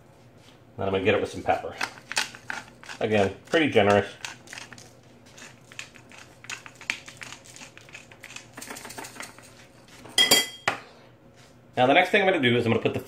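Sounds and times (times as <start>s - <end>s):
pepper mill grinding: 1.7s - 10.0s.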